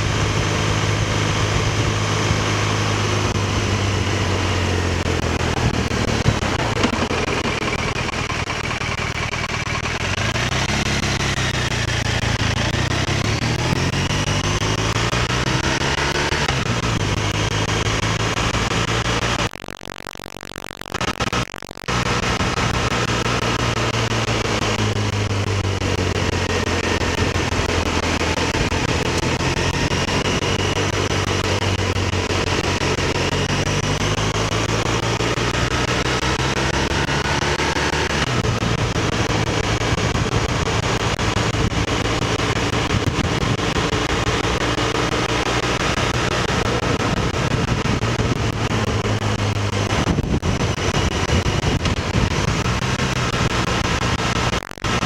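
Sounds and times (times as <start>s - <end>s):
motorcycle engine running: 0.0s - 19.6s, 21.0s - 55.0s
road noise: 0.0s - 19.6s, 20.9s - 55.0s
wind noise: 46.2s - 54.5s.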